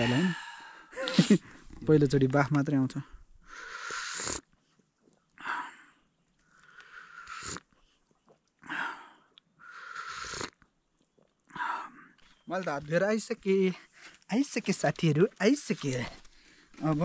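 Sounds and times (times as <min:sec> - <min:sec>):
person breathing heavily: 0:00.0 - 0:01.7, 0:03.4 - 0:04.3.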